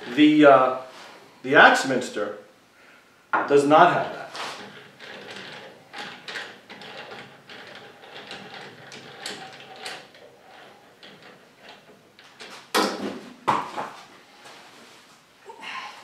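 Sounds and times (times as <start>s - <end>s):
knocks: 12.7s - 14.0s.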